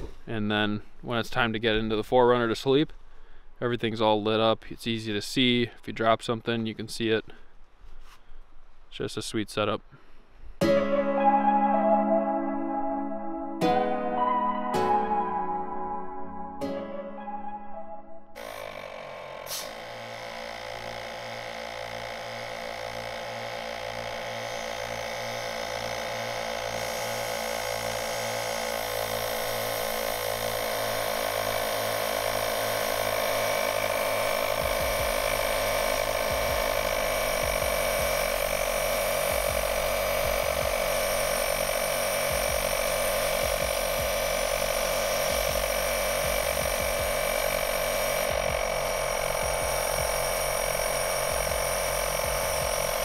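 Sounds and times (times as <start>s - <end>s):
air compressor running: 0.0s - 0.3s, 18.4s - 53.0s.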